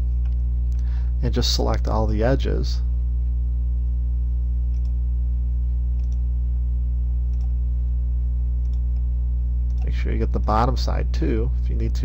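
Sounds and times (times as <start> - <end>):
electrical mains hum: 0.0 - 12.0
computer mouse clicks: 4.7 - 5.0, 6.0 - 6.2, 7.3 - 7.5, 8.6 - 9.1.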